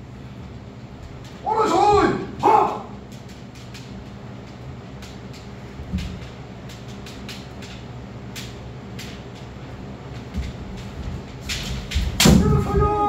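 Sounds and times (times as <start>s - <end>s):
steady low hum: 0.0s - 13.0s
bamboo swords clicking: 2.4s - 10.9s.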